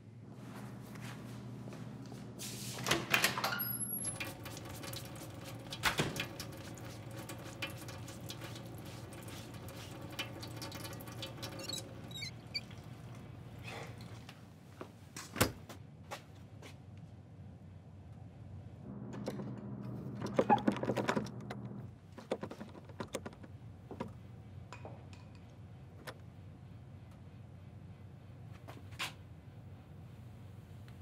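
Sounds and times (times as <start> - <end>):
short squeaks: 11.3 - 12.8.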